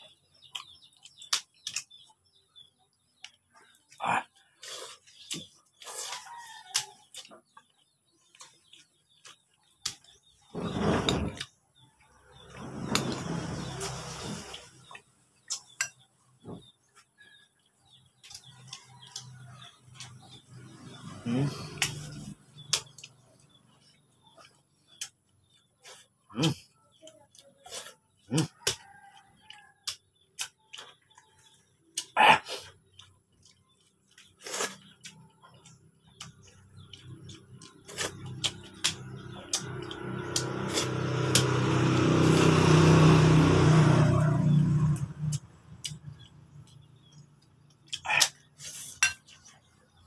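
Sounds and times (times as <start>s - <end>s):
man chewing food: 3.2s - 10.4s, 13.0s - 26.7s, 27.3s - 41.5s, 45.4s - 50.0s
engine running: 12.2s - 15.0s, 37.4s - 47.3s
mouth clicks: 47.9s - 49.0s.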